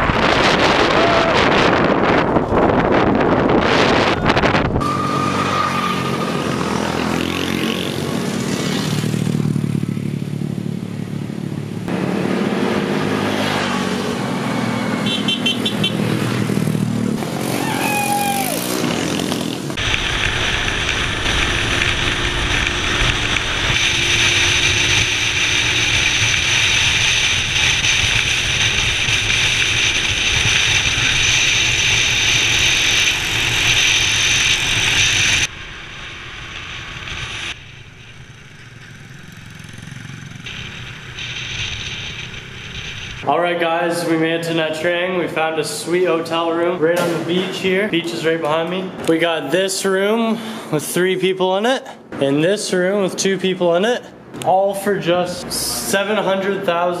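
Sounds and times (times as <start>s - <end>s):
wind noise: 0.0s - 5.1s, 19.6s - 44.8s
small motorbike engines: 0.0s - 49.2s
road noise: 0.0s - 57.0s.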